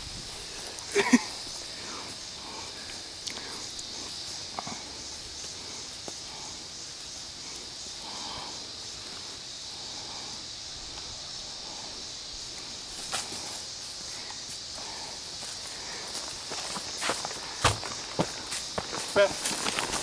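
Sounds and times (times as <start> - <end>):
insects buzzing: 0.0 - 20.0
footsteps on dry leaves: 15.4 - 20.0.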